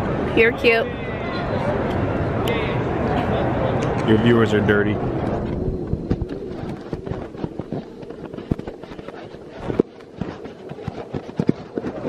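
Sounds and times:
low background murmur: 0:00.0 - 0:12.0
microphone handling crackles and knocks: 0:05.4 - 0:12.0.

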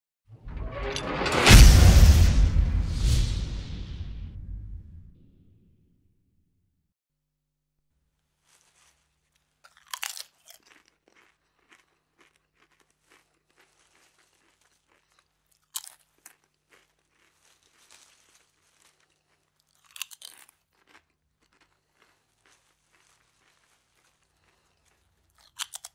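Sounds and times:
crunching bites of fries: 0:08.1 - 0:25.9
crackly chewing: 0:08.2 - 0:25.9.

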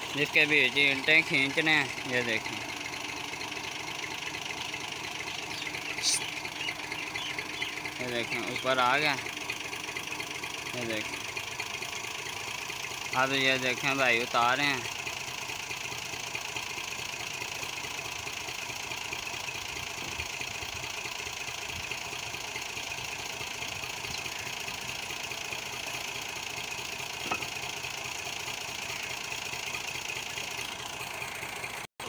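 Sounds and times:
tractor diesel engine idling: 0:00.0 - 0:31.9.

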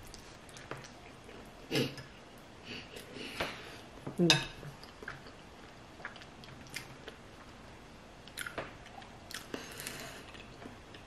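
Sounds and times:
person chewing: 0:04.8 - 0:07.2, 0:08.2 - 0:11.0.

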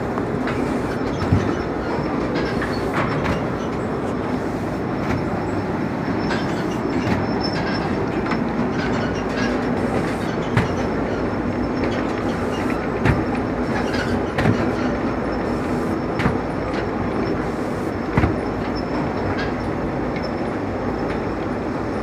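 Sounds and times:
rumbling clattering din: 0:00.0 - 0:15.3.

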